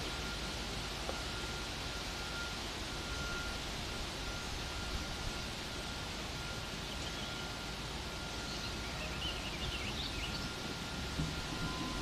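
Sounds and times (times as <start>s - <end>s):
faint bird chirps: 6.8s - 7.6s, 8.2s - 10.6s.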